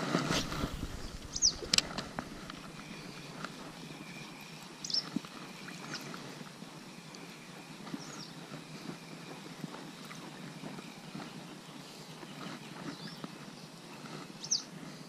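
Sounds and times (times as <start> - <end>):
spinning reel whirring: 0.3 - 5.6
bird chirping: 0.3 - 6.1, 14.4 - 14.7.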